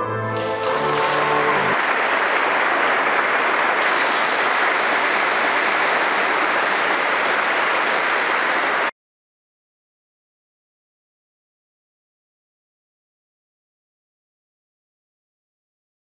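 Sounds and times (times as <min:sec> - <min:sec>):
audience applauding: 0:00.4 - 0:08.9.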